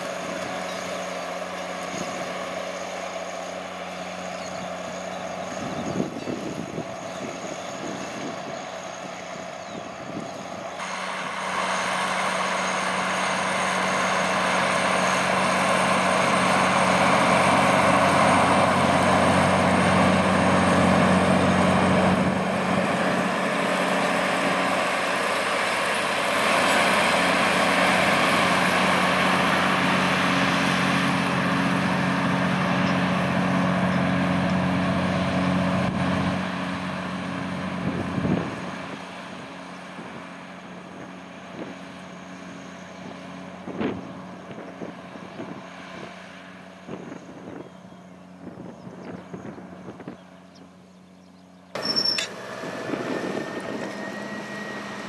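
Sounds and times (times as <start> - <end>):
tractor engine under load: 0.0 - 46.6, 50.2 - 55.0
plough rushing through soil: 51.8 - 55.0.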